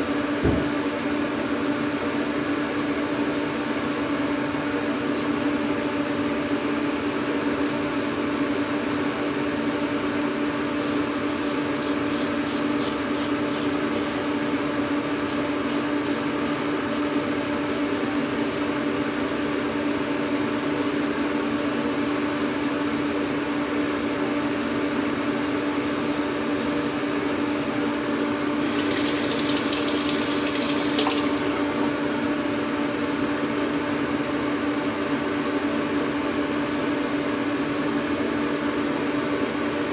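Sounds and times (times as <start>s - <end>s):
steady mechanical hum: 0.0s - 39.9s
razor scraping stubble: 25.8s - 27.1s, 28.6s - 31.4s
tap running: 28.6s - 32.0s.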